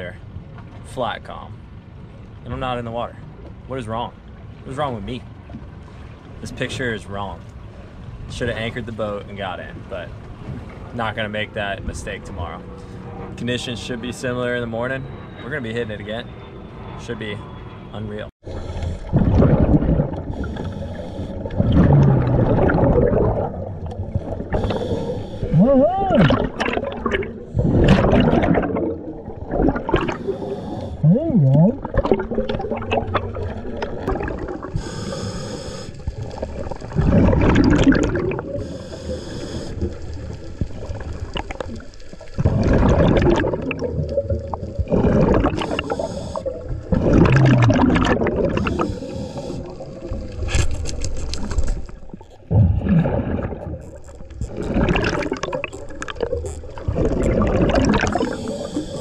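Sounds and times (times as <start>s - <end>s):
air bubbles gurgling: 18.9s - 35.0s, 36.0s - 38.8s, 39.7s - 50.7s, 51.3s - 59.0s
regulator hissing underwater: 20.2s - 21.6s, 24.1s - 25.7s, 29.9s - 31.2s, 34.6s - 36.5s, 38.2s - 40.2s, 45.4s - 46.7s, 48.3s - 50.3s, 57.6s - 59.0s.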